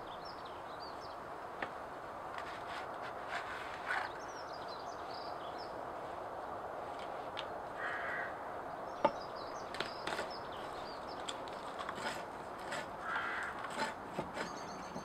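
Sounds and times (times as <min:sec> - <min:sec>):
steady outdoor hiss: 0:00.0 - 0:15.0
crow cawing: 0:07.8 - 0:08.4, 0:13.0 - 0:13.6
small bird chirping: 0:14.3 - 0:15.0.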